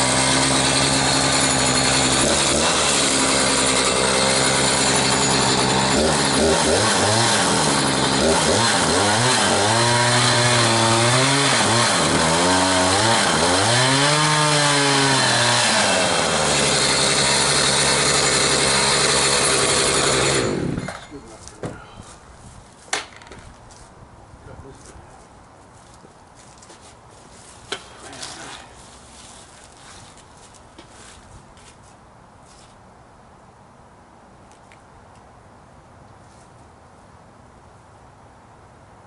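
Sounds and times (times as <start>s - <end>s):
chainsaw cutting into log: 0.0s - 21.8s.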